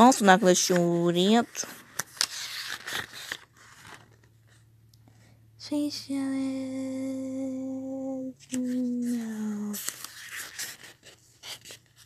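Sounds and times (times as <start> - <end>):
person humming: 5.6 - 9.8.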